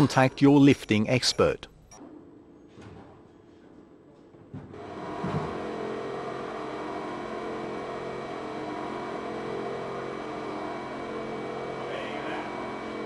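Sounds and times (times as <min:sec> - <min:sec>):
electric hoist humming: 0:04.8 - 0:13.0.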